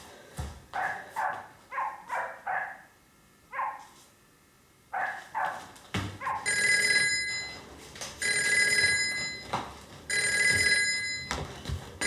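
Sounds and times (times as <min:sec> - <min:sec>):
telephone ringing: 0:06.5 - 0:11.4.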